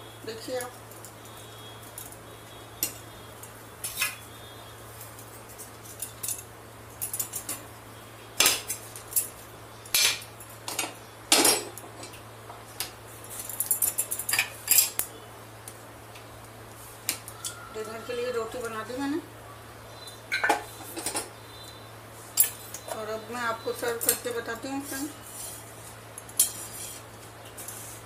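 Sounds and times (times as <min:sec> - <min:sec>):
metal kitchenware clattering: 0:09.9 - 0:12.2, 0:13.4 - 0:15.0, 0:20.3 - 0:21.3
tongs clinking against pans: 0:13.4 - 0:15.1, 0:22.4 - 0:22.9, 0:23.8 - 0:25.0, 0:26.2 - 0:27.7.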